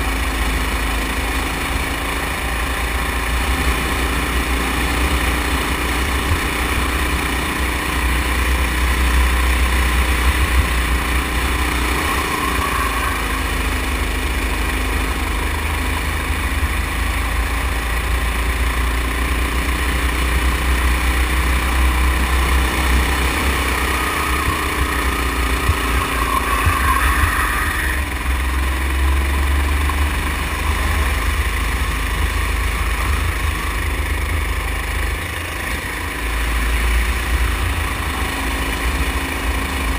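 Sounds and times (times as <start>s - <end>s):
go-kart engine under throttle: 0.0s - 39.9s
heavy low rumble: 21.0s - 38.0s.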